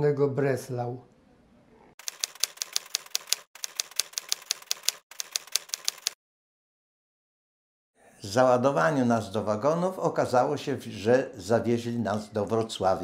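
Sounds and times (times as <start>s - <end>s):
typewriter keys striking: 2.0s - 6.2s.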